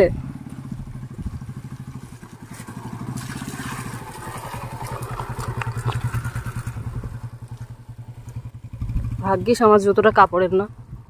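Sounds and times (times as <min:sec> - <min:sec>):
fast low throb: 0:00.0 - 0:11.0
stream running over rocks: 0:01.4 - 0:08.4
faint ticks: 0:07.5 - 0:08.5.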